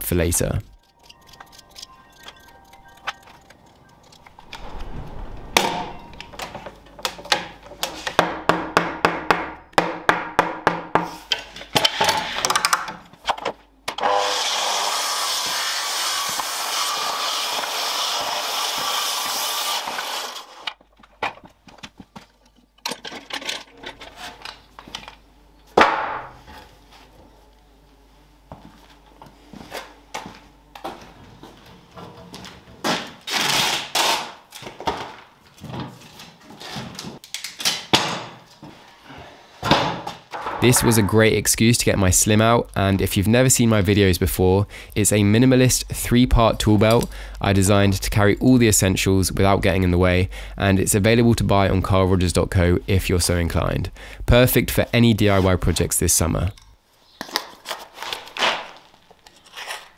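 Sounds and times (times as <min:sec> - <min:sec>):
saw cutting wood: 0:14.0 - 0:20.8.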